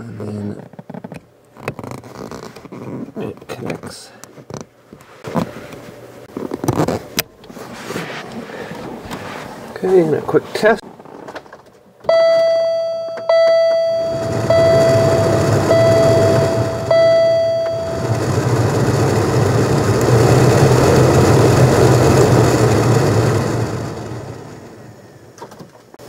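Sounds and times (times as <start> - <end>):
dashboard warning chime: 12.1 - 18.8
blower motor rushing air: 13.9 - 25.4.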